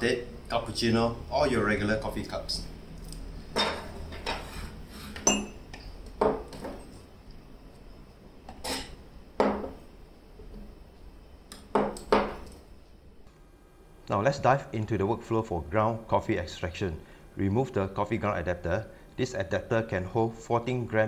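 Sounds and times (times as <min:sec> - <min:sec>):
mug knocking on tabletop: 0:09.4 - 0:09.8.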